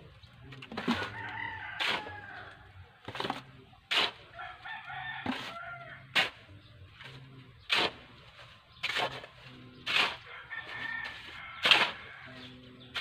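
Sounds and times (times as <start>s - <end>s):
rooster crowing: 1.0s - 2.7s, 4.4s - 6.0s, 10.2s - 12.5s.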